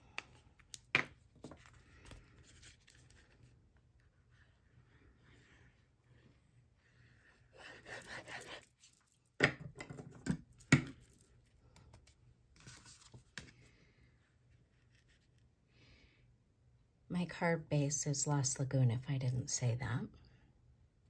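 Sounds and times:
paper rustling and sliding: 12.6 - 13.7.

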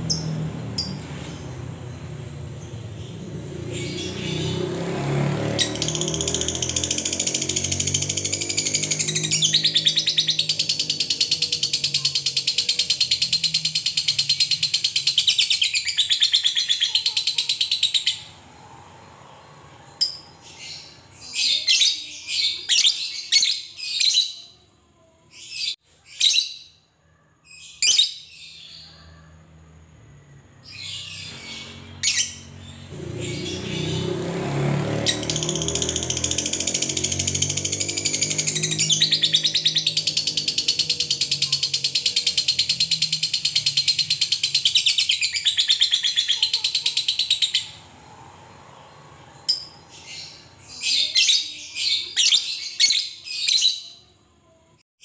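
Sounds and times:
bird chattering trill: 5.6 - 18.3, 35.1 - 47.8.

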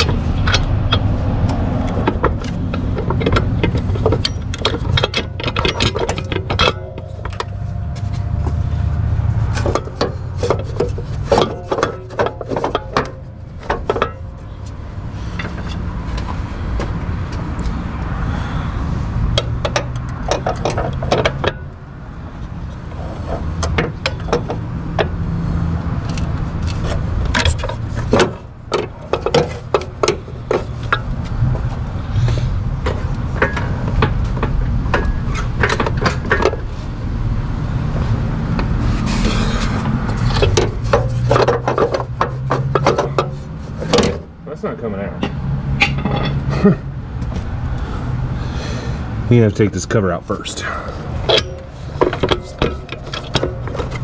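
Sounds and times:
low rumble: 0.0 - 11.2
hand tools clanking on metal: 0.0 - 17.7, 19.3 - 21.8, 26.1 - 36.7, 38.5 - 44.3, 45.1 - 54.0.

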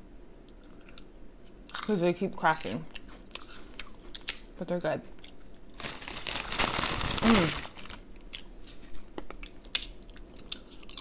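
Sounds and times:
chewing crispy crackers: 0.5 - 4.5, 5.2 - 11.0
person humming: 7.1 - 7.8.

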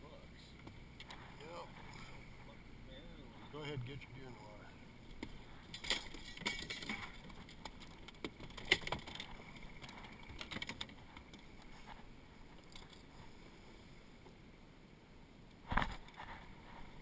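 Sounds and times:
low steady background: 0.0 - 17.0
fishing tackle clicking and knocking: 5.1 - 11.5.

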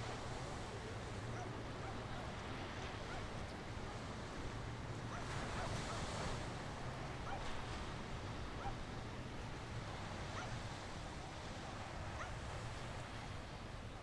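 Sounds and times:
wind: 0.0 - 14.0.

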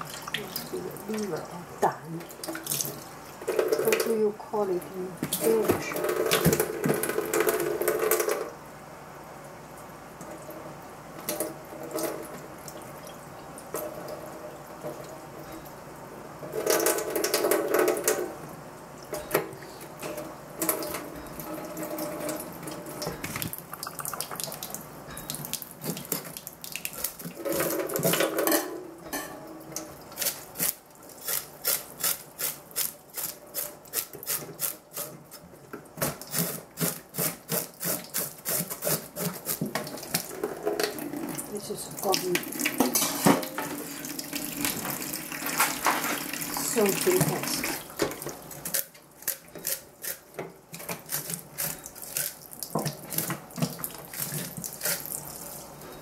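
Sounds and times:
tap water running into sink: 0.0 - 4.3, 5.2 - 8.6, 16.4 - 18.4, 19.1 - 28.8, 35.7 - 48.8, 52.5 - 55.3
fish being scrubbed: 36.3 - 39.7, 54.0 - 55.1.

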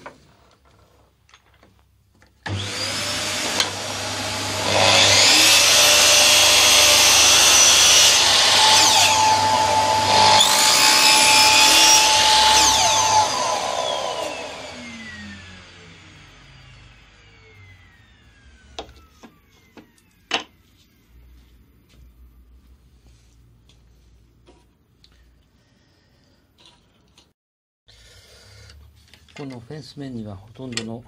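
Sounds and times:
miter saw cutting wood: 2.5 - 20.0.

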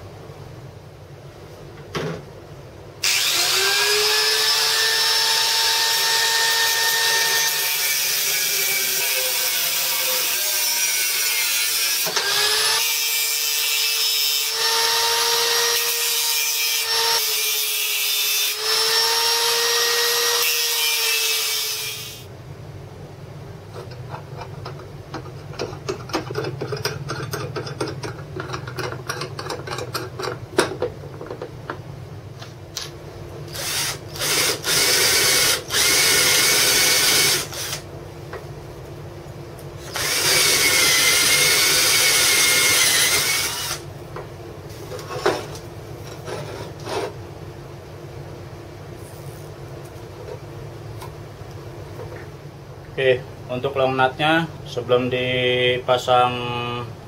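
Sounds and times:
angle grinder cutting steel: 3.0 - 22.3, 39.8 - 43.8
metal rods clicking and rattling: 24.4 - 30.8.

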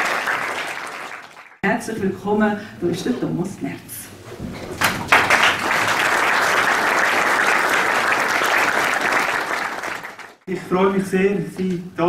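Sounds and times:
audience applauding: 0.0 - 1.6, 4.8 - 10.5.

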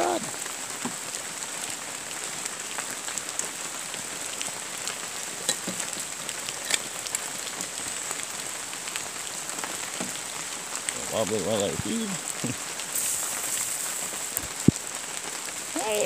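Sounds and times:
steady rain falling: 0.0 - 16.0
single raindrops tapping: 12.3 - 14.9.

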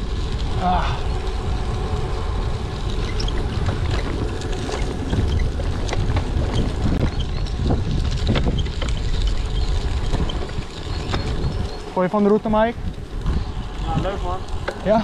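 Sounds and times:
tyres rumbling on rough path: 0.0 - 15.0
wind buffeting microphone: 0.0 - 15.0
small knocks and rattles: 3.0 - 11.8.

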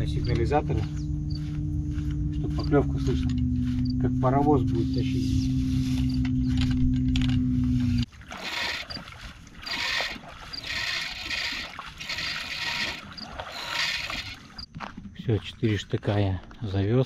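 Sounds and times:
steady low hum: 0.0 - 17.0
oars splashing in water: 8.0 - 15.5.

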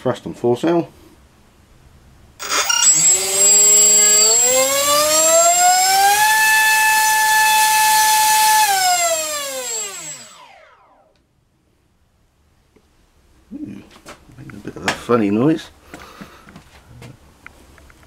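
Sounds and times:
electric motor and propeller whine: 2.4 - 11.1.

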